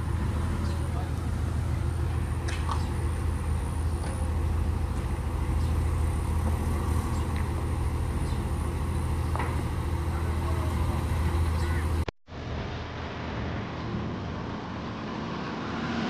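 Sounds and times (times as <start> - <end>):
ferry engine idling: 0.0 - 12.1.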